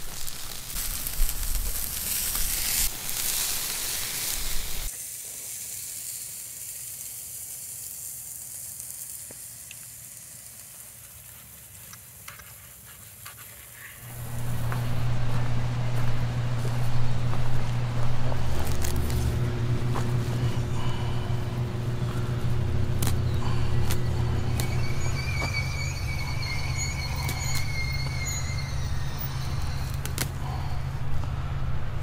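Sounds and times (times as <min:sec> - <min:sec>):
steak sizzling over fire: 0:00.0 - 0:30.7
low hum: 0:14.0 - 0:32.0.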